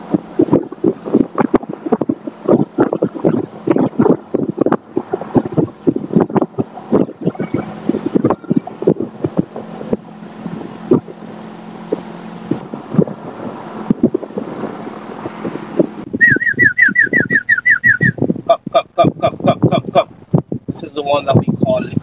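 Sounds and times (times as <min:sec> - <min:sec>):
boat motor running: 0:00.0 - 0:22.0
wind buffeting microphone: 0:00.0 - 0:22.0
pulsed calls: 0:00.2 - 0:14.1, 0:15.0 - 0:20.2
high falling whistled chirps: 0:16.2 - 0:18.2.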